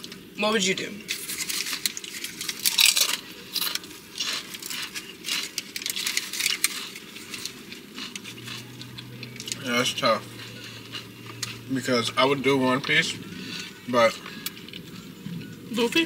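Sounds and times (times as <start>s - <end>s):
eating clicks and crackles: 1.1s - 9.7s.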